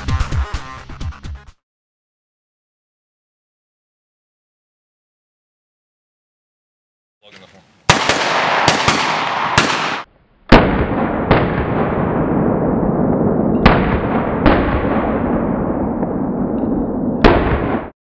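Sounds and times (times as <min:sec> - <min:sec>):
rifle shots: 0:07.9 - 0:17.9.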